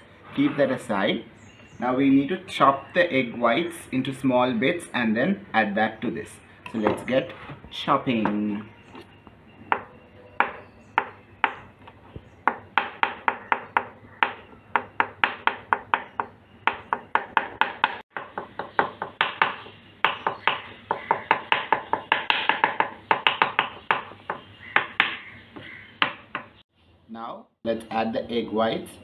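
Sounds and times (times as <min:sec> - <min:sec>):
knife chopping on wooden board: 0:09.7 - 0:26.5.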